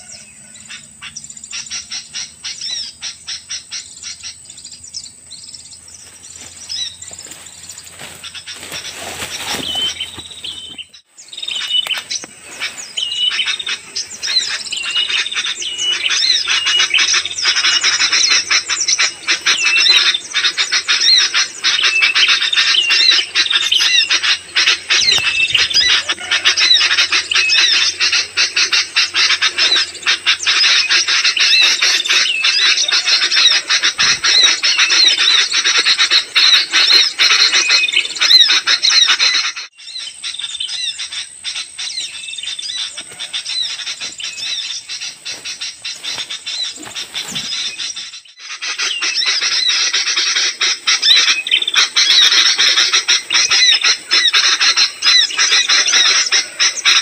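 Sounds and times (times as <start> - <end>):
bird alarm chatter from speaker: 0.0 - 57.0
birds chirping: 0.0 - 57.0.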